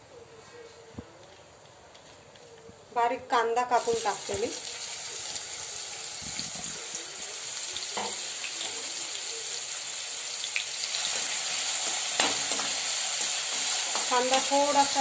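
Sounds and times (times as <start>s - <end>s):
onion sizzling in hot oil: 3.7s - 15.0s.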